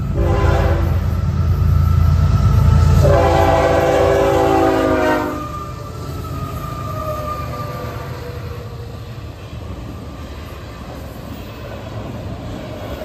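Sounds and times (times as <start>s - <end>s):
locomotive air horn: 0.0s - 1.1s, 2.6s - 5.8s
locomotive rumble: 0.0s - 13.0s.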